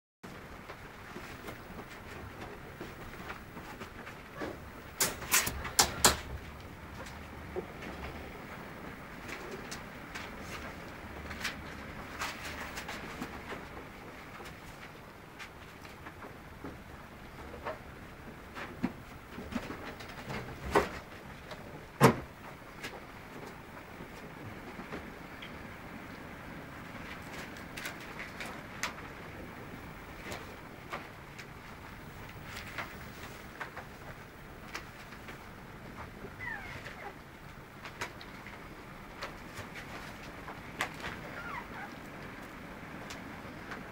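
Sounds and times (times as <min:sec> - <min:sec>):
puppy squeaks and grunts: 0:36.4 - 0:37.2, 0:41.3 - 0:42.0.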